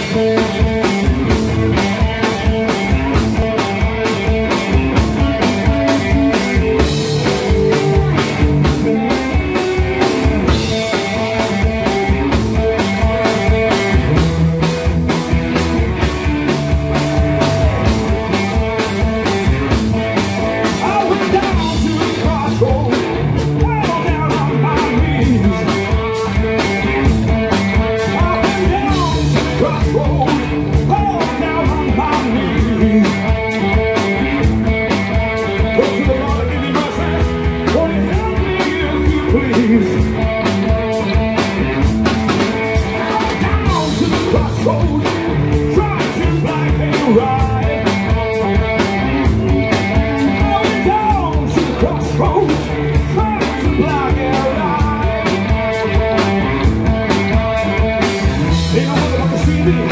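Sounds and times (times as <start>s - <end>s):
driving drum kit: 0.0s - 59.9s
electric guitars: 0.0s - 59.9s
man singing lead vocal: 16.6s - 19.3s, 20.5s - 26.7s, 27.8s - 34.4s, 35.4s - 41.2s, 42.3s - 56.2s, 58.2s - 59.9s.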